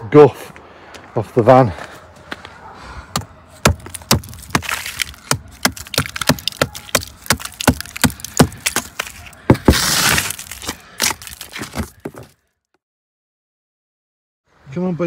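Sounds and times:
hand tool chipping ice: 3.6s - 12.3s.

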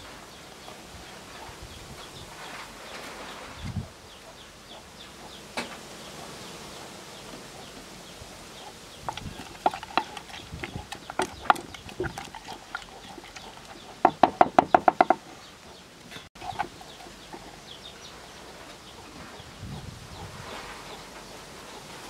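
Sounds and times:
chickens clucking: 1.2s - 22.0s
metal spoon scraping in a mortar: 9.1s - 14.0s.

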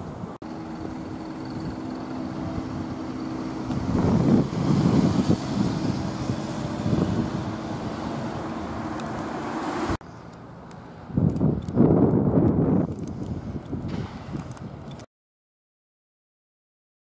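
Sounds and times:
vehicle engine running: 0.4s - 10.0s.

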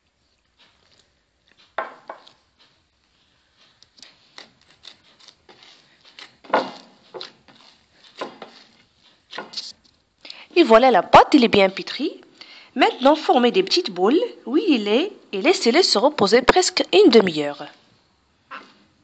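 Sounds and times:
hands mixing dough in a bowl: 0.0s - 17.9s.

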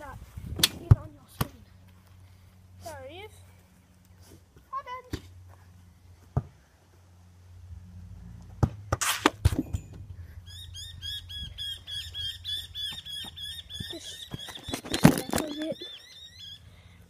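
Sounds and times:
bird chirping rapidly: 10.4s - 16.7s.

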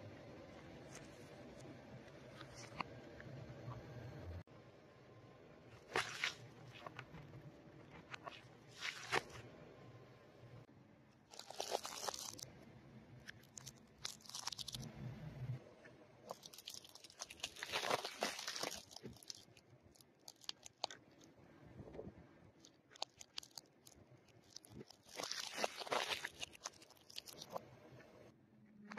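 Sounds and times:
tyre crushing pine cones: 16.3s - 19.5s, 24.6s - 27.5s.

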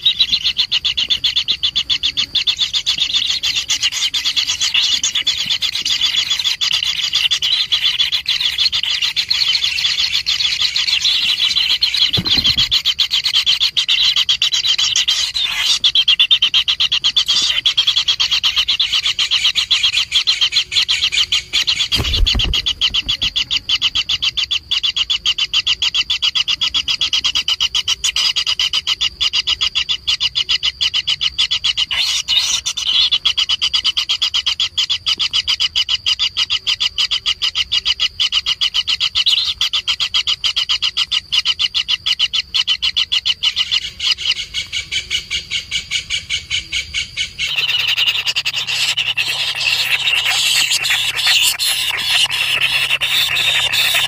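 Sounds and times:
nestlings begging with rasping calls: 0.0s - 54.0s
thump: 12.1s - 12.8s, 21.9s - 23.2s.

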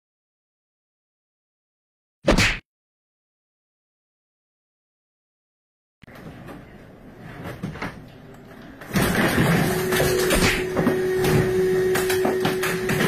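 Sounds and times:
ceiling tiles crashing and clattering: 8.8s - 13.0s.

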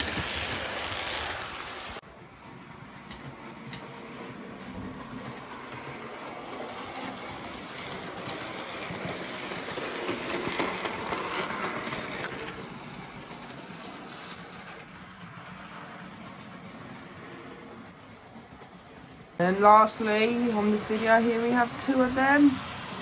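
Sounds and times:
model train running on track: 0.0s - 23.0s.

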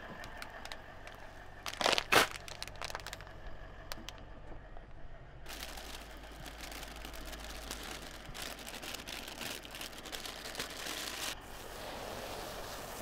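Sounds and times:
low steady hum: 0.0s - 11.8s
plastic bag rustling: 1.0s - 3.3s, 5.5s - 11.4s.

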